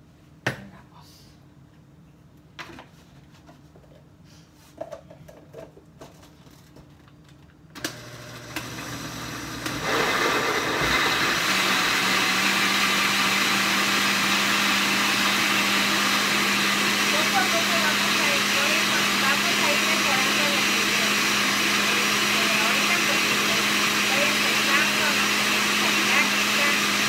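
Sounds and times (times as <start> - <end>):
countertop blender running: 7.8 - 27.0.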